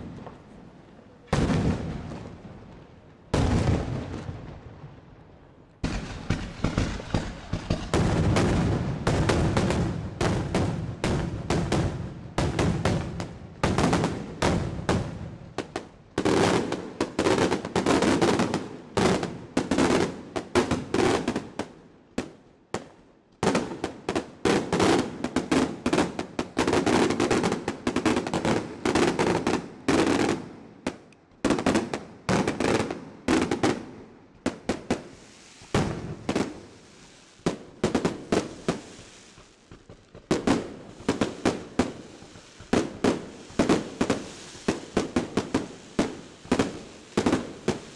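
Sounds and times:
fireworks bursting with sharp bangs: 0.0 - 47.9
steady hiss: 35.0 - 39.8, 40.7 - 47.9.

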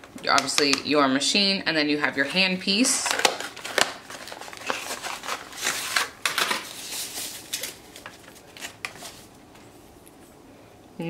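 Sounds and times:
cardboard and paper rustling: 2.8 - 9.8.

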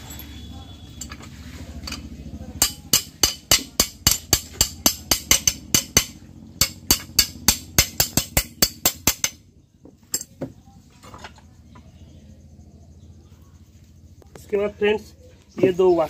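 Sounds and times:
sharp metallic clicks: 2.6 - 9.4.

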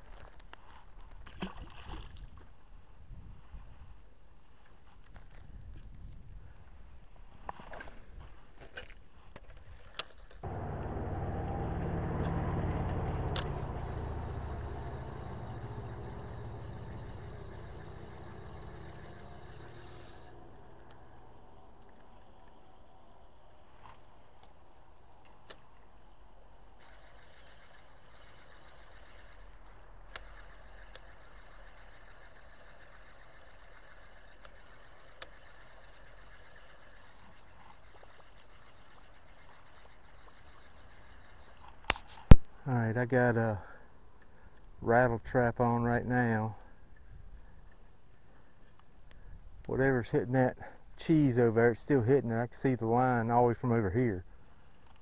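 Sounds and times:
vehicle engine passing by: 10.4 - 21.7.

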